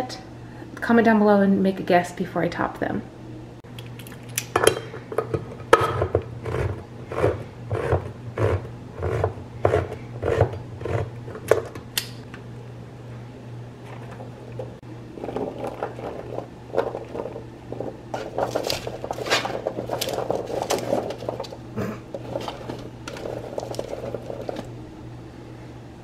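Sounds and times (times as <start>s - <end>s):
steady low hum: 0.0s - 26.0s
parchment paper crinkling: 17.8s - 21.6s, 22.2s - 24.7s.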